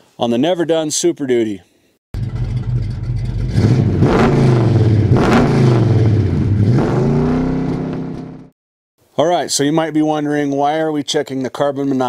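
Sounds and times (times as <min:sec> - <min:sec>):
vehicle engine revving: 0:02.2 - 0:08.6.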